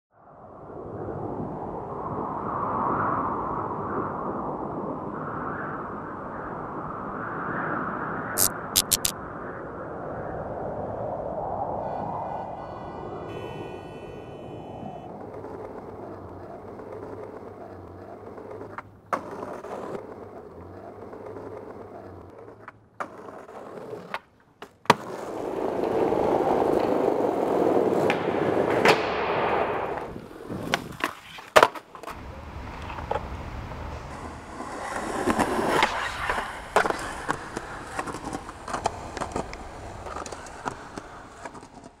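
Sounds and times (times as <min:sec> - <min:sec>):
skateboard wheels rolling: 0:11.8 - 0:42.0
skateboard clacks: 0:15.0 - 0:42.0.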